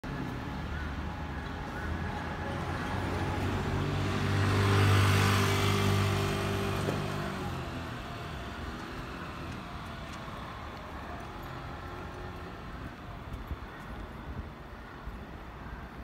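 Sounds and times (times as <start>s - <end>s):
street traffic: 0.0s - 16.0s
car passing by: 1.8s - 12.6s.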